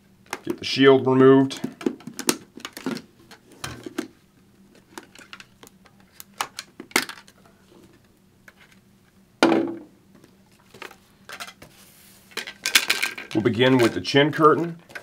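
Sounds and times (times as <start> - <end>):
plastic helmet parts clicking: 1.6 - 4.1, 4.7 - 7.4.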